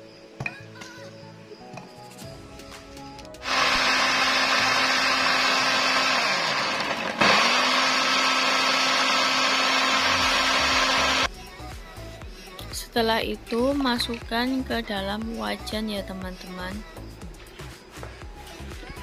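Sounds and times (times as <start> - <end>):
blender motor grinding: 3.4 - 11.3.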